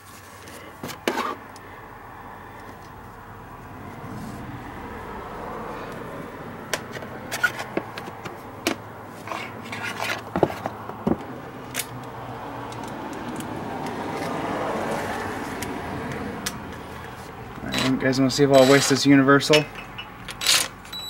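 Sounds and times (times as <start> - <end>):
hands handling metal tools: 17.1 - 21.0.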